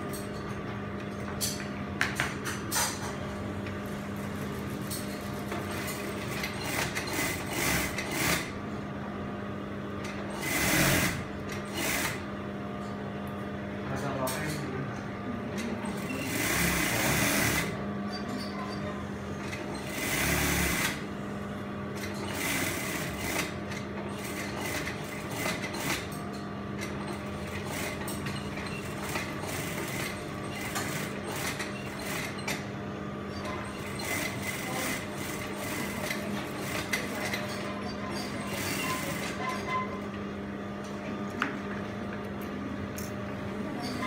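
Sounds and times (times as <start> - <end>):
sewing machine stitching: 10.4 - 12.2, 19.8 - 21.0.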